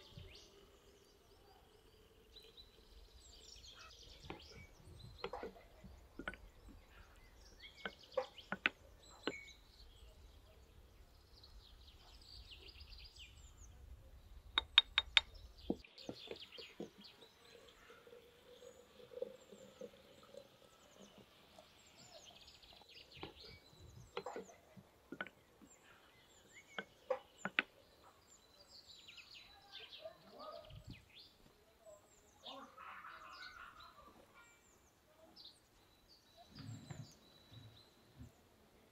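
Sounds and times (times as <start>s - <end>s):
birds chirping: 0.0s - 38.9s
wooden spoon knocking glass jar: 14.6s - 15.3s.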